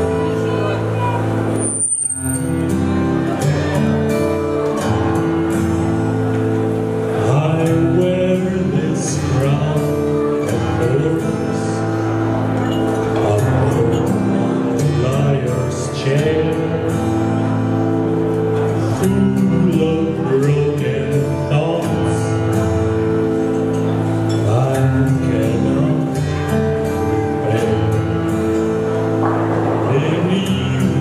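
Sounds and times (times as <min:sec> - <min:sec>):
instrumental accompaniment: 0:00.0 - 0:31.0
man singing into microphone: 0:07.1 - 0:23.3, 0:24.0 - 0:31.0.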